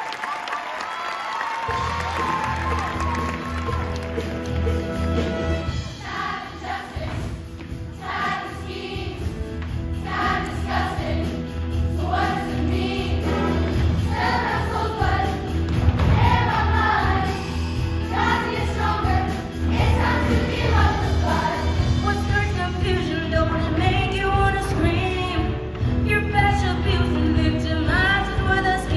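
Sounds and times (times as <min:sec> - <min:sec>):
instrumental accompaniment with bass: 0:01.8 - 0:28.9
choir singing: 0:05.6 - 0:22.0.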